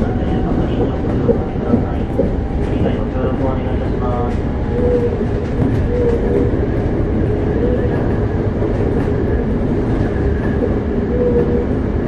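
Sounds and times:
rail joint clicks: 0:00.0 - 0:12.0
train wheels rumbling on rail: 0:00.0 - 0:12.0.

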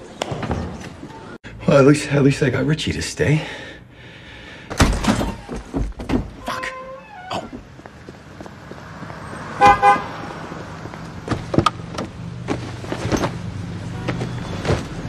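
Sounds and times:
car horn toots: 0:09.6 - 0:10.2.

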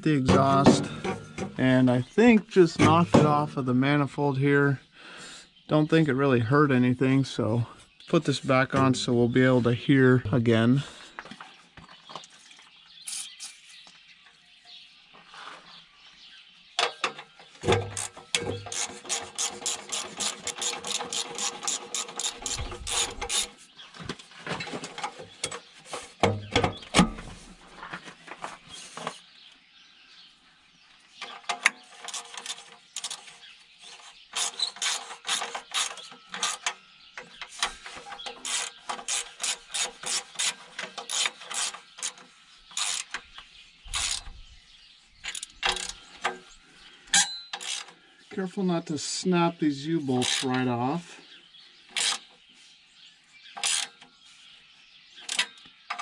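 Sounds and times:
ratchet wrench clicking: 0:47.6 - 0:47.9, 0:53.6 - 0:53.9.

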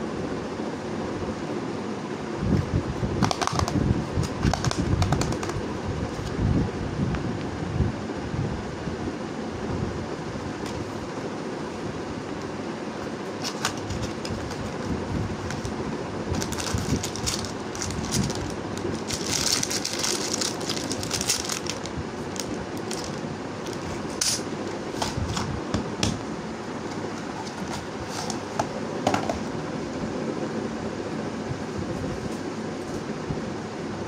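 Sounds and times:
fan-like background hum: 0:00.0 - 0:34.0
plastic bag rustling and crinkling: 0:13.3 - 0:25.5
cardboard box opening: 0:13.4 - 0:24.1.

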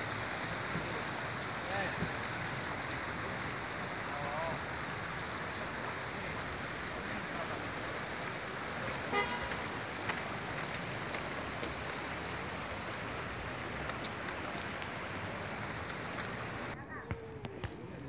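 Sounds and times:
town background noise: 0:00.0 - 0:18.0
vehicle horn toot: 0:09.1 - 0:09.6.

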